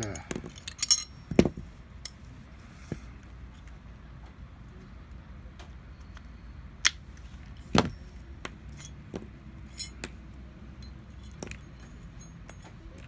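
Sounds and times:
pistol parts clicking and clacking: 0:00.0 - 0:02.2, 0:07.7 - 0:13.0
low steady hum: 0:00.0 - 0:13.0.

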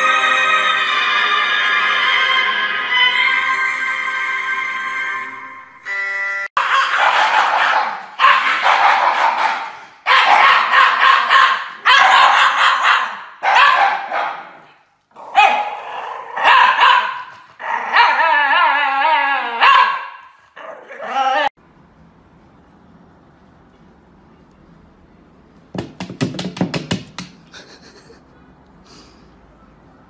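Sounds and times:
dogs howling: 0:17.6 - 0:20.0, 0:20.6 - 0:21.6.

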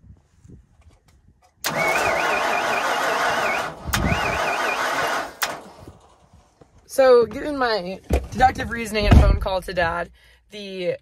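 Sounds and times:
electric starter cranking engine: 0:01.6 - 0:06.4.

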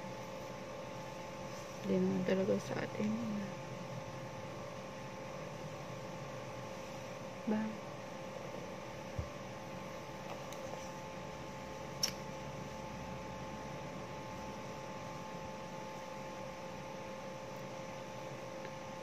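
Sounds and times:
electrical hum: 0:00.0 - 0:19.0
sharp click: 0:12.0 - 0:12.2.

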